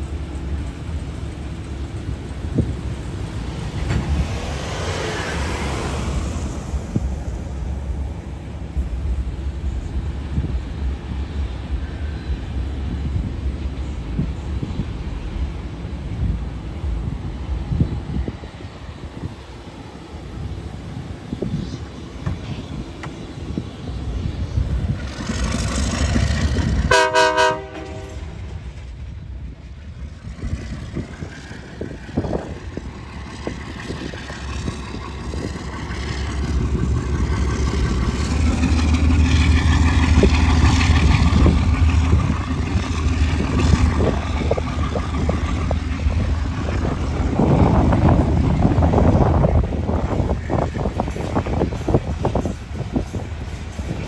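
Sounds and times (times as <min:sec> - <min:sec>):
wheels clicking over rail joints: 0:00.0 - 0:17.9, 0:27.8 - 0:54.0
freight cars rumbling past: 0:00.0 - 0:54.0
locomotive horn blast: 0:26.9 - 0:28.6.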